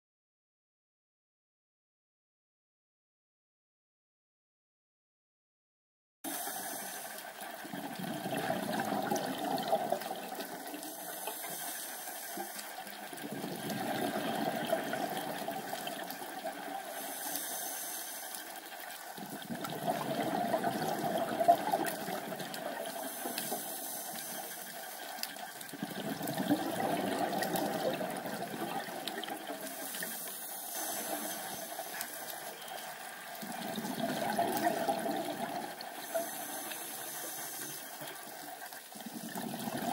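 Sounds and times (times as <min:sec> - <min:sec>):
regulator inhale hiss: 0:06.3 - 0:07.5, 0:10.7 - 0:13.0, 0:16.9 - 0:19.2, 0:22.8 - 0:25.5, 0:29.6 - 0:32.9, 0:35.9 - 0:38.7
exhaled bubbles rushing: 0:07.5 - 0:10.8, 0:12.9 - 0:17.0, 0:19.2 - 0:23.8, 0:25.4 - 0:30.1, 0:30.7 - 0:39.9.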